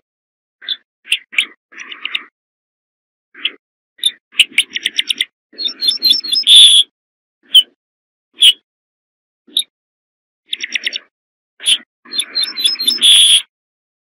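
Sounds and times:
bunting singing: 3.4s - 7.8s, 10.5s - 13.5s.

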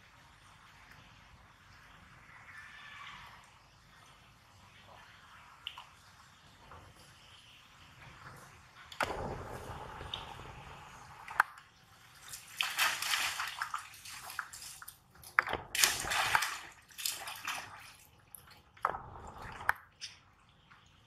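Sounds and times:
monkeys splashing in water: 11.2s - 20.3s.

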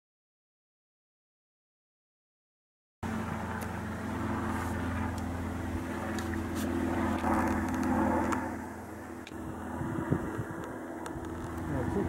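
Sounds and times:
low engine-like hum: 3.0s - 12.0s.

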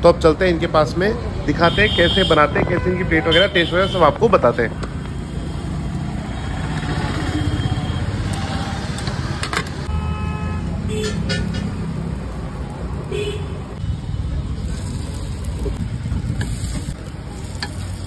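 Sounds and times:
street traffic rumble: 0.0s - 18.0s
vehicle horn honking: 9.9s - 11.2s, 13.1s - 13.6s.

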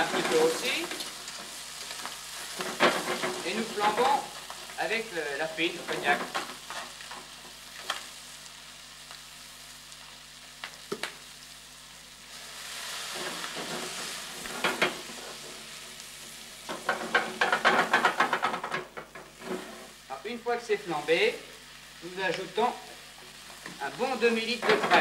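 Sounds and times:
stirring crackling and scraping: 0.0s - 8.1s, 12.8s - 20.2s, 22.3s - 25.0s
food sizzling in a pan: 0.0s - 25.0s
rushing hiss of flambe: 12.2s - 17.9s.

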